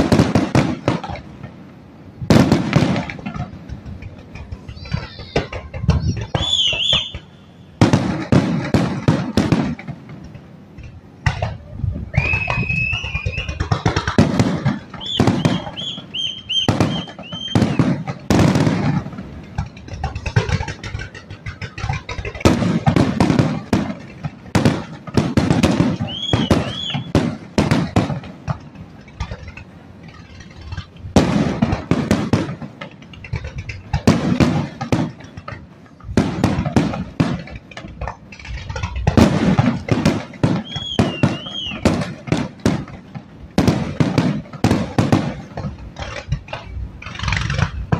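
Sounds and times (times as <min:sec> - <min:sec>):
fireworks bangs and crackling: 0:00.0 - 0:47.9
firework whistles: 0:04.4 - 0:08.4, 0:11.4 - 0:18.9, 0:25.2 - 0:28.1, 0:38.4 - 0:42.4.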